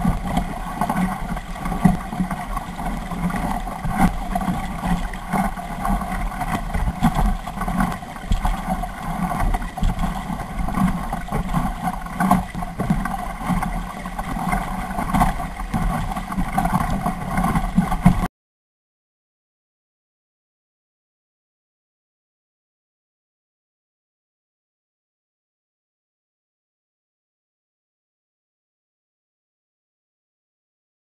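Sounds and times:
muffled rush of water: 0.0s - 18.3s.

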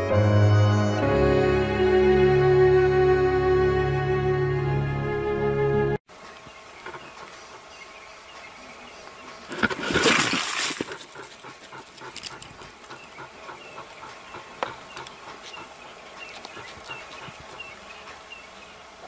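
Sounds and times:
animals hissing and snarling: 9.4s - 18.5s.

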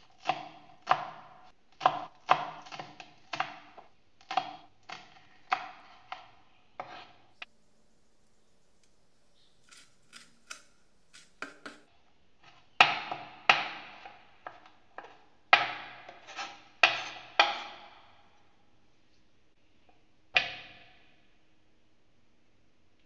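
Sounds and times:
knife chopping on wooden board: 0.1s - 7.1s, 9.6s - 17.9s.

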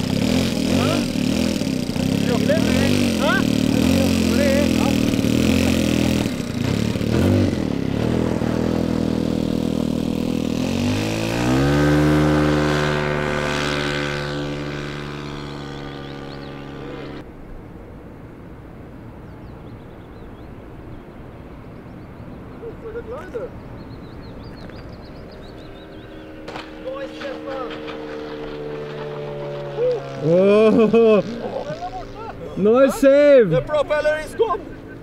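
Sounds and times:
model plane piston engine: 0.0s - 8.4s.

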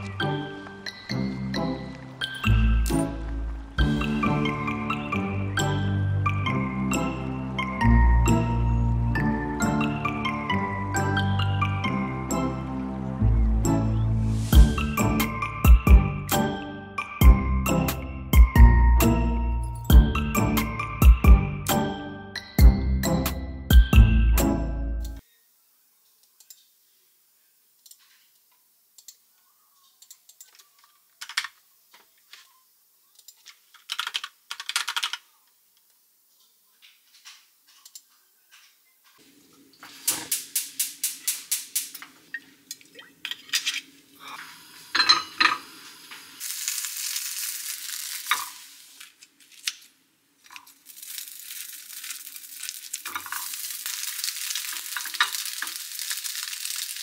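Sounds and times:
keyboard and mouse clicks: 29.9s - 31.6s
chicken sizzling in pan: 44.2s - 49.2s, 50.5s - 57.0s.

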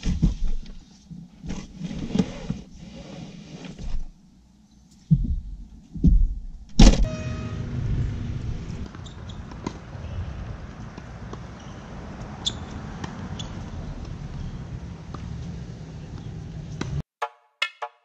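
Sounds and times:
outdoor rumble: 6.7s - 17.0s
car hatch slammed shut: 6.8s - 7.2s.

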